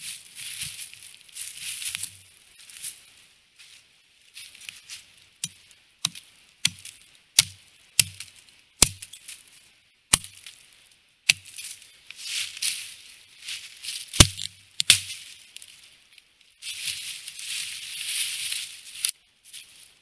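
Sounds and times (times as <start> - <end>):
dry leaves rustling underfoot: 0.0 - 20.0
hatchet chopping log: 5.4 - 9.2, 10.1 - 10.4, 11.3 - 11.5, 14.2 - 15.1.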